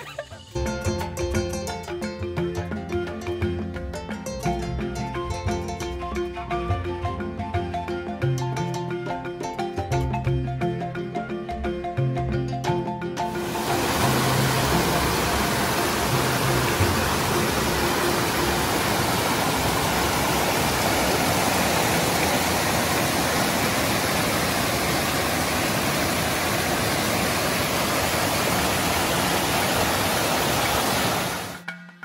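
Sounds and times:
stream rushing over rocks: 13.3s - 31.6s.

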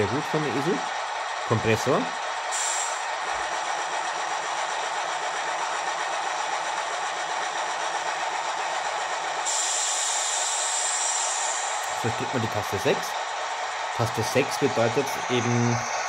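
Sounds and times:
air compressor hiss from small speaker: 9.5s - 12.4s.

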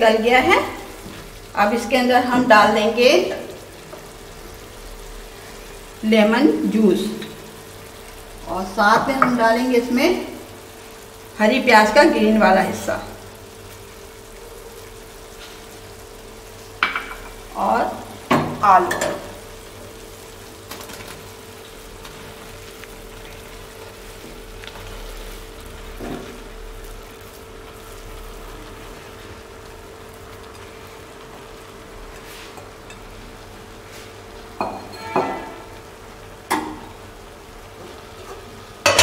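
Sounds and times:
food sizzling in a metal pan: 0.0s - 39.0s
metal spoon scraping a pan: 34.7s - 35.7s.

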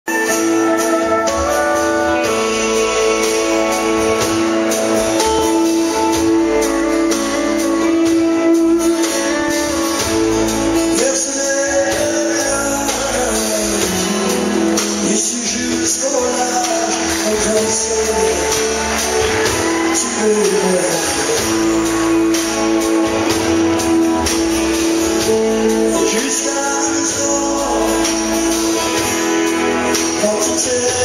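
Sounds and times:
drum kit: 0.1s - 31.0s
electric guitars: 0.1s - 31.0s
strummed acoustic guitars: 0.1s - 31.0s.

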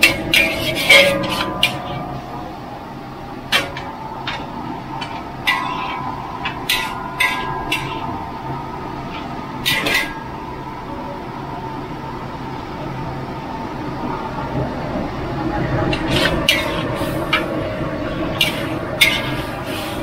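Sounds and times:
metal spatula scraping a wok: 0.0s - 2.4s, 5.0s - 8.2s, 9.1s - 10.2s, 16.0s - 17.5s, 18.2s - 20.0s
steady background hum: 0.0s - 20.0s.

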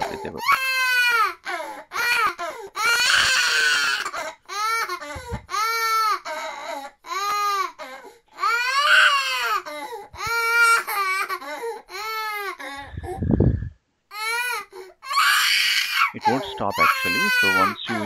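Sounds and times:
child crying: 0.0s - 12.8s, 14.1s - 18.0s.

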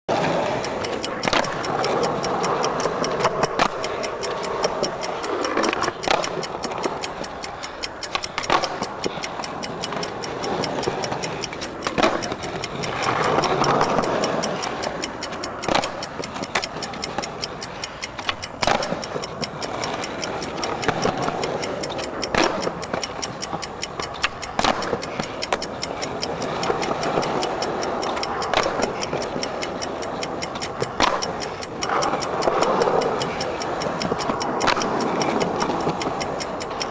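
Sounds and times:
fast steady ticking: 0.0s - 36.9s
skateboard clacking: 0.1s - 36.9s.

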